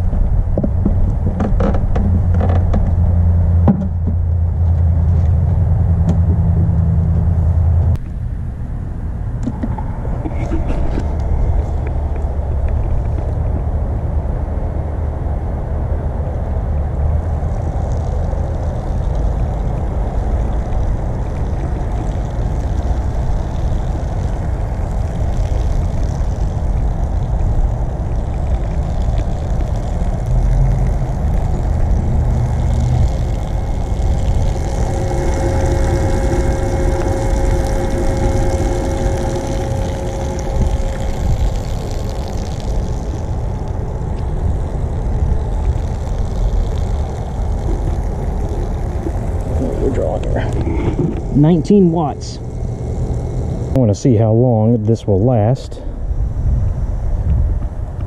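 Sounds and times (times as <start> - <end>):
droning hum: 0.0 - 58.0
wind rumble on microphone: 0.0 - 58.0
pump spraying water onto grass: 17.0 - 53.9.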